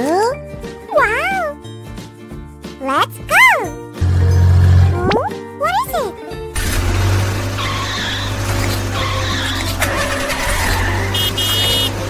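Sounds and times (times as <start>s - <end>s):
cartoon engine drone: 6.6s - 12.0s.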